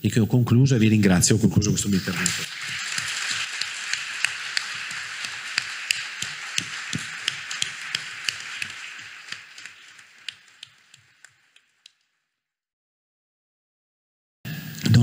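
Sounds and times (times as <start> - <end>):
audience applause: 1.8 - 12.0.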